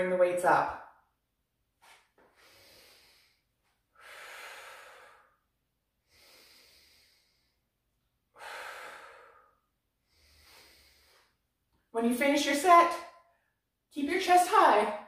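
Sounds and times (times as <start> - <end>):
woman breathing: 2.2 - 11.6.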